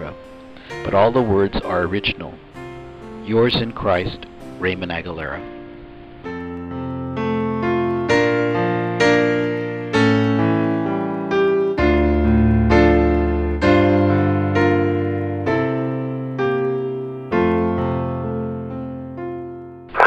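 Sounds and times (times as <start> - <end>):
slow solo piano chords: 0.0 - 20.0.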